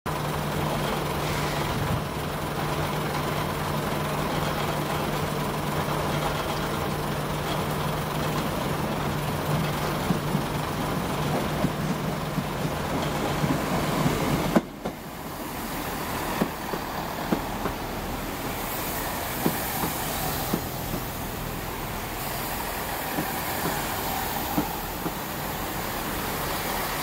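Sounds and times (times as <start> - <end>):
diesel train engine drone: 0.1 - 27.0.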